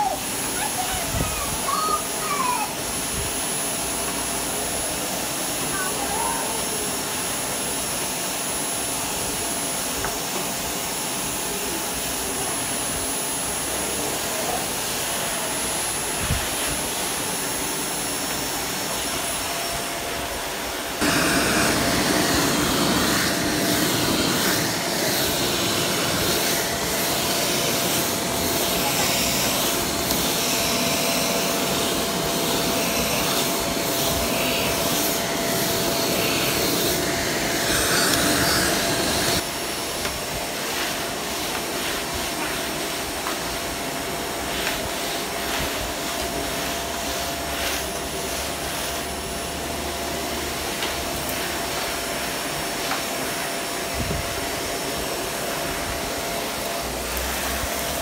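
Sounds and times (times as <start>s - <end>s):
vacuum cleaner running: 0.0s - 58.0s
rhythmic vacuum swishing: 21.0s - 39.4s.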